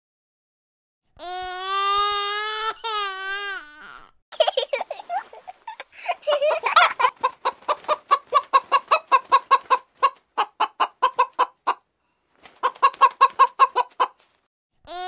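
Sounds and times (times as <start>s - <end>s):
hen clucking: 6.3s - 11.9s, 12.6s - 14.2s.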